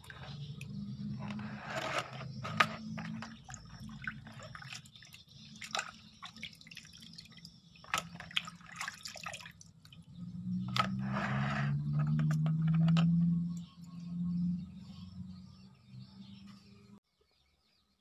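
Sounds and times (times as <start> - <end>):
water splashing in a plastic basin: 2.3 - 10.2.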